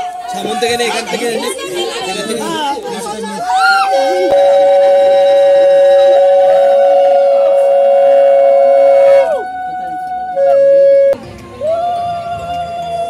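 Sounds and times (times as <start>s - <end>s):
conch shells blown: 3.9s - 11.2s.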